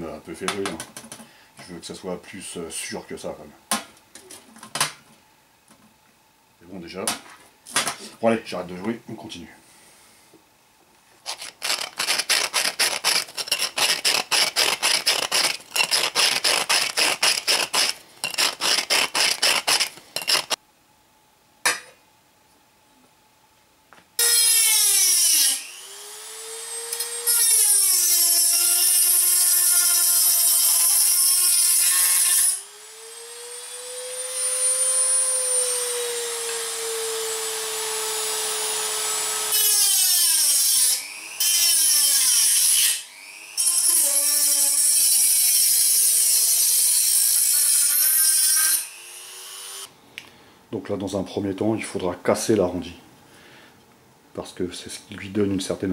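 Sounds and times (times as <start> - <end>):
hand file rasping on tin can: 11.2 - 20.6
rotary tool whining: 11.2 - 20.6.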